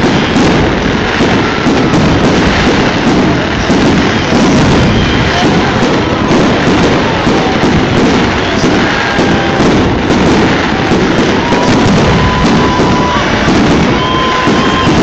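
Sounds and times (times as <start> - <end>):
fireworks booming and crackling: 0.0 - 15.0
faint whistling tones: 11.5 - 15.0.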